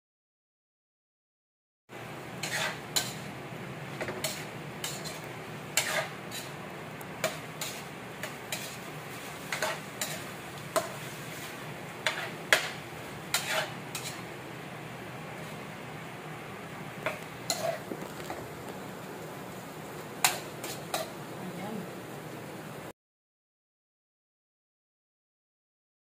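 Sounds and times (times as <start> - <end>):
chicken sizzling: 1.9 - 22.9
metal spatula scraping frying pan: 2.4 - 14.3, 17.0 - 18.4, 20.2 - 21.2.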